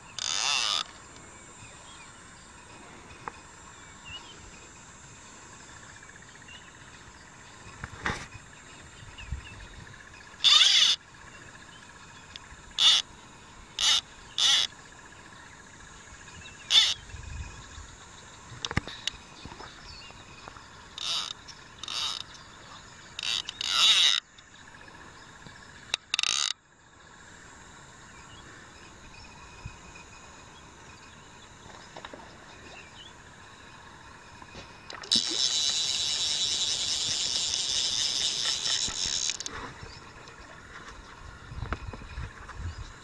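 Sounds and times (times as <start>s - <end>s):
fishing reel clicking: 0.1s - 0.9s, 10.4s - 11.0s, 12.3s - 13.0s, 13.8s - 14.7s, 16.7s - 17.0s, 21.0s - 22.4s, 23.2s - 24.3s, 25.9s - 26.6s, 34.9s - 39.5s.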